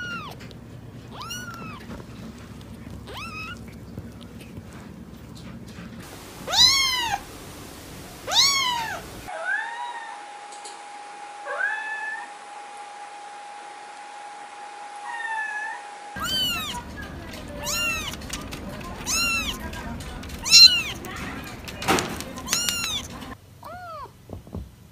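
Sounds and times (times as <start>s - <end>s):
cat meowing: 0.0s - 2.0s, 2.9s - 3.7s, 6.1s - 7.4s, 8.2s - 10.0s, 15.1s - 24.1s
kittens mewing: 0.0s - 4.4s, 6.0s - 9.3s, 15.1s - 24.1s.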